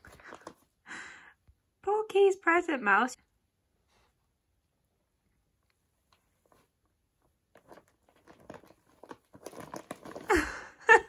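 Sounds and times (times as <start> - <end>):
wrapping paper rustling and crinkling: 7.5 - 10.7.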